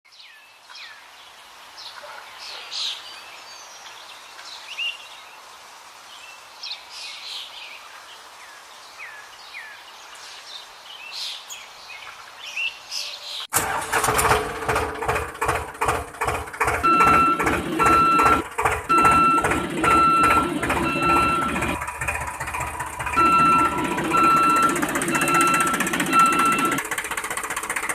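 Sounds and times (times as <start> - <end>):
repeating electronic beep: 16.8 - 21.8, 23.1 - 26.8.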